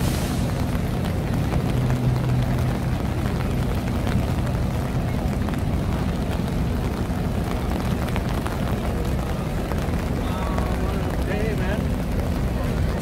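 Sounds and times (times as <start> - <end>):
low rumble of city noise: 0.0 - 13.0
rain: 0.0 - 13.0.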